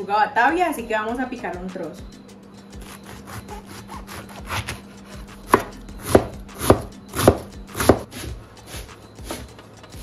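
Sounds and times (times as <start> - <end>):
knife chopping on cutting board: 2.8 - 9.6.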